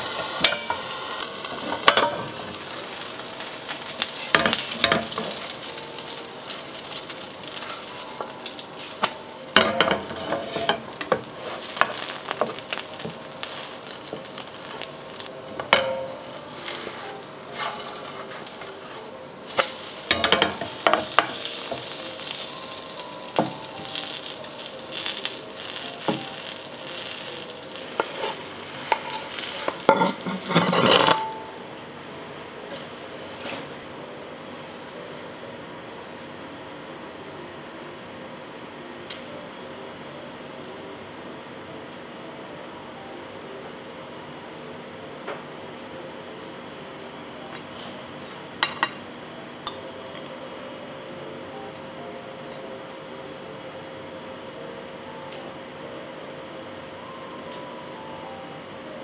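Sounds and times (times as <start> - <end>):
food sizzling in a pan: 0.0 - 31.7, 32.6 - 33.9
wooden spatula scraping a pan: 9.8 - 13.2, 16.5 - 19.0, 28.0 - 31.2.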